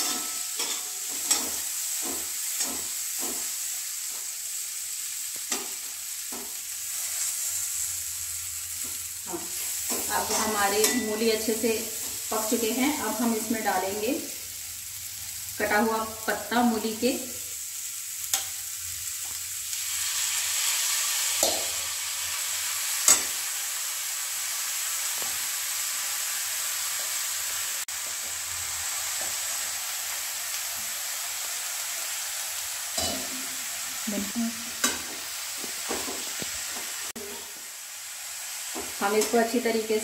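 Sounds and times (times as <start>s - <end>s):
spatula knocking and scraping pan: 0.0s - 4.2s, 8.8s - 12.2s, 34.8s - 37.6s
vegetables sizzling in a pan: 0.0s - 40.0s.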